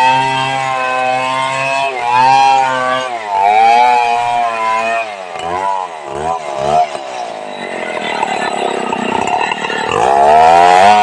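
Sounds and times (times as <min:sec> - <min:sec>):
chainsaw cutting log: 0:00.0 - 0:07.2, 0:08.9 - 0:11.0.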